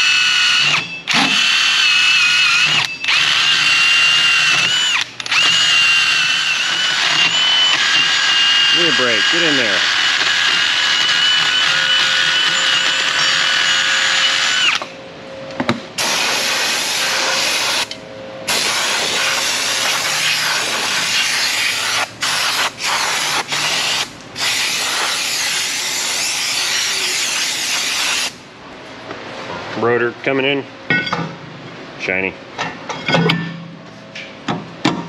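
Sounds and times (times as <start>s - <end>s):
cordless drill spinning: 0.0s - 0.8s, 1.4s - 14.9s.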